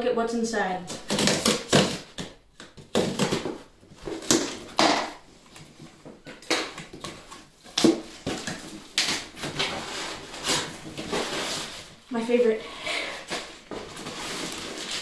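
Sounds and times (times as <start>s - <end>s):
tape ripping: 0.9s - 5.2s, 13.3s - 15.0s
cardboard box cut with scissors: 1.0s - 2.2s.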